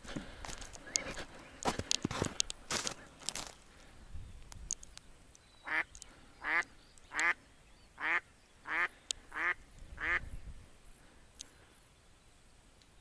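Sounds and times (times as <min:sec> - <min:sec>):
duck quacking loudly: 0:08.0 - 0:10.2.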